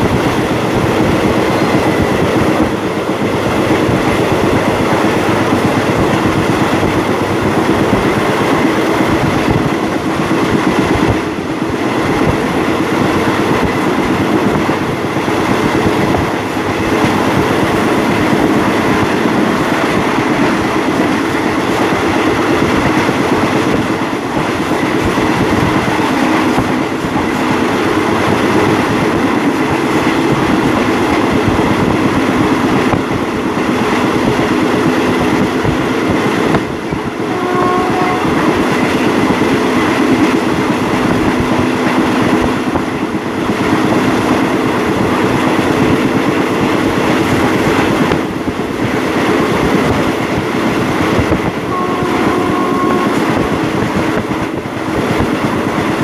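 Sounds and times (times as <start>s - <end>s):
train wheels rumbling on rails: 0.0s - 56.0s
short tone: 1.5s - 2.1s.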